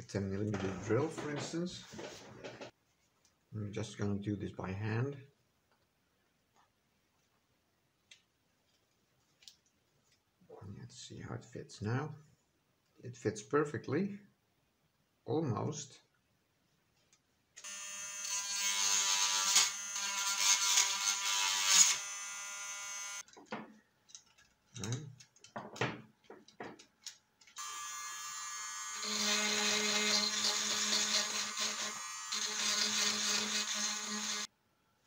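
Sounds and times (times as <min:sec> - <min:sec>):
small electric motor whining: 0:17.6 - 0:23.2, 0:27.6 - 0:34.5
handling clicks and knocks: 0:23.2 - 0:27.2
rotary tool cutting plastic: 0:29.0 - 0:34.5.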